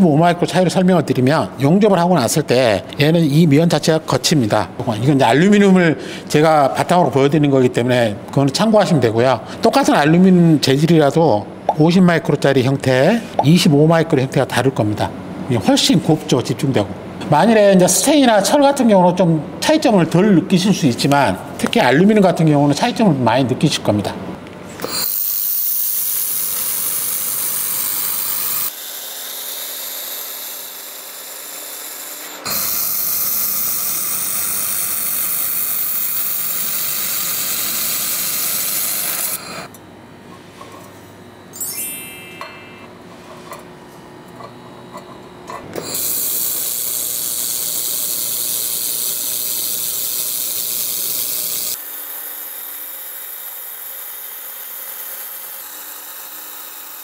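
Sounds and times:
welding hiss: 24.8 - 28.8, 32.4 - 39.5, 45.9 - 52.6.

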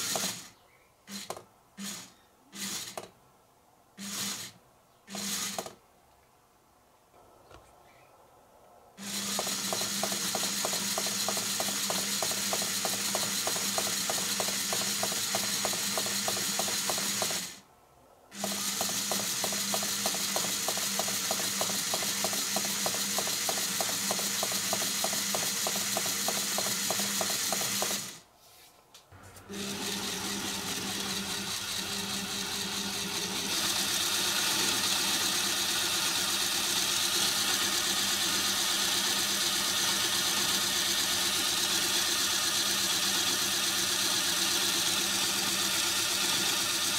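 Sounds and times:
smooth motor whirr: 4.0 - 5.8, 9.0 - 17.6, 18.4 - 28.2, 29.2 - 46.9
small motor humming with gear ticking: 9.0 - 17.6, 18.4 - 28.2, 29.5 - 46.9.

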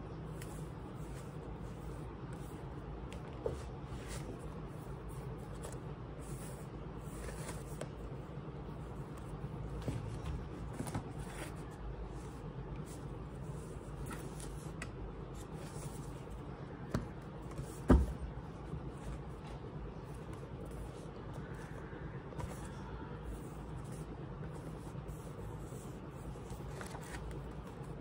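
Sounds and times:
steady low hum: 0.0 - 28.0
book pages rustling: 0.3 - 16.4, 23.4 - 28.0.

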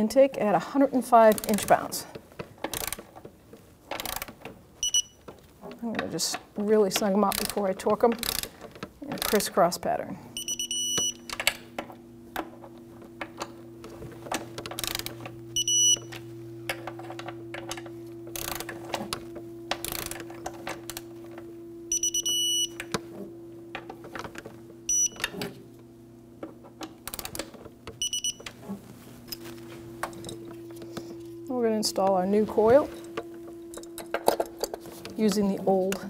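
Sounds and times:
wrench ratcheting clicks: 2.6 - 3.1, 3.9 - 4.4, 7.3 - 8.5, 14.7 - 15.2, 18.4 - 18.7, 19.8 - 20.2
torque wrench beeping: 4.0 - 5.3, 10.4 - 11.6, 13.3 - 23.1, 23.7 - 25.6, 27.0 - 28.6.

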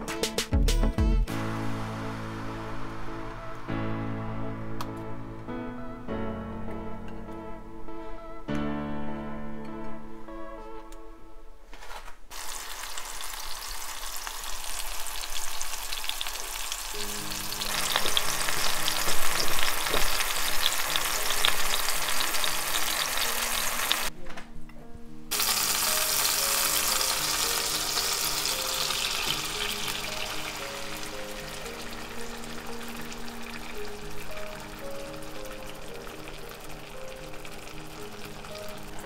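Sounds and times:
soft background music: 0.0 - 12.3, 15.0 - 39.0
food frying in a pan: 12.3 - 24.1, 25.3 - 39.0.

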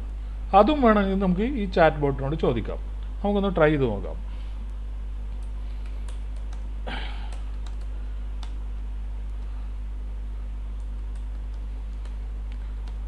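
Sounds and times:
low electrical hum: 0.0 - 13.0
keyboard typing clicks: 5.3 - 6.7, 7.3 - 8.6, 10.8 - 13.0.

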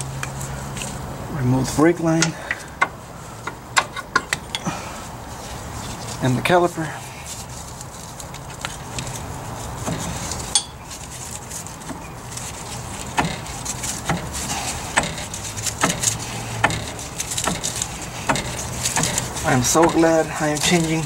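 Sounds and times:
metal clinks and knocks: 2.2 - 4.7, 8.6 - 21.0.

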